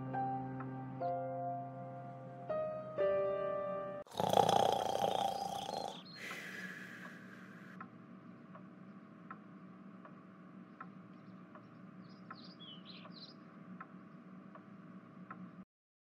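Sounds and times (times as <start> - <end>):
soft ticking: 7.0 - 15.5.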